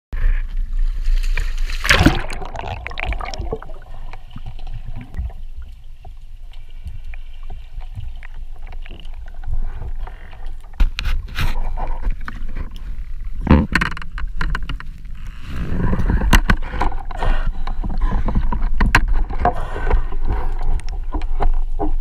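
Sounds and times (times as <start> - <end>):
water splashing at surface: 1.0 - 5.4
muffled underwater rumble: 1.9 - 22.0.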